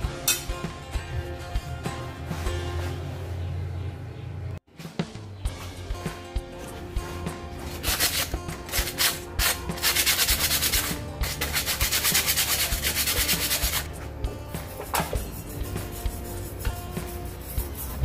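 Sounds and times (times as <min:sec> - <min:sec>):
background music: 0:00.0 - 0:18.0
sandpaper scraping rusty metal: 0:06.5 - 0:13.9, 0:14.6 - 0:18.0.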